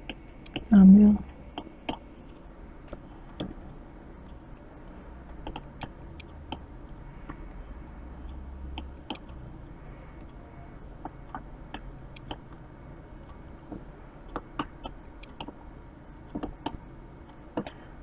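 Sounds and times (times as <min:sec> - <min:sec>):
faint room noise: 0:00.0 - 0:18.0
mouse and keyboard clicks: 0:05.4 - 0:06.3, 0:11.3 - 0:12.4.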